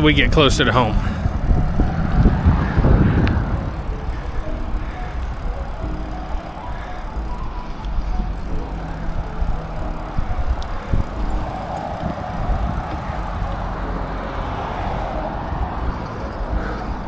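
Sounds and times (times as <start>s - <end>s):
wind rumbling on microphone: 0.0s - 6.6s, 7.2s - 17.0s
passing cars: 0.0s - 17.0s.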